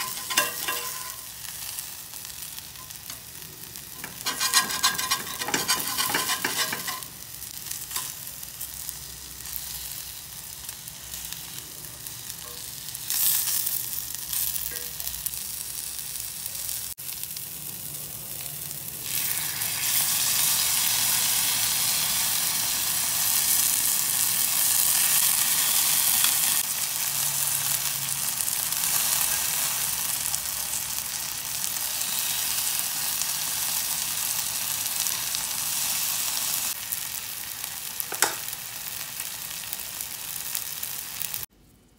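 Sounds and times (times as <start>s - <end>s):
tongs and spatula scraping pan: 0.0s - 1.3s, 2.7s - 7.3s
food sizzling in a skillet: 0.0s - 41.5s.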